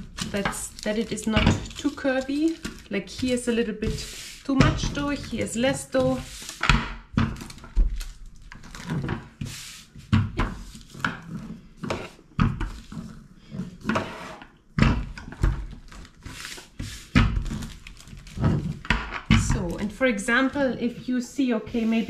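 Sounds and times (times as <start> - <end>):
rolling pin rolling dough: 0.0 - 21.0.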